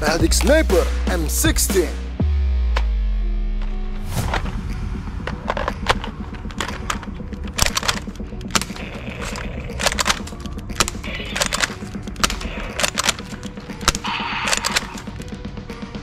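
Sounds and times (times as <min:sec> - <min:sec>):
toy blaster rattling and cracking: 0:07.6 - 0:15.3.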